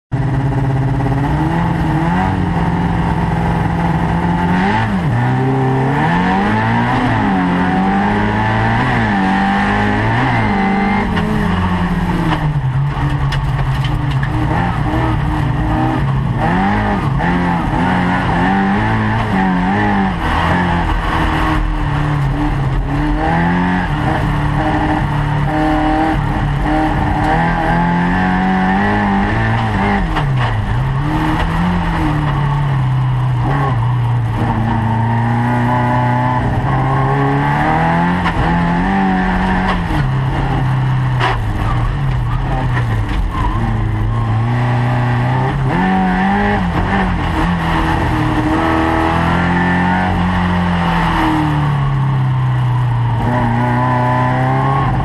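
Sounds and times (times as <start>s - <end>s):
car engine revving: 0.1s - 55.0s.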